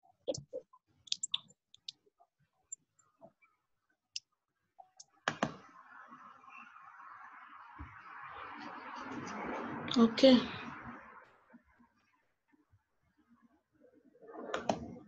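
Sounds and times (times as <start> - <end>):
keyboard clicks: 1.1 - 1.9
computer mouse clicks: 1.1 - 2.0, 5.0 - 5.6.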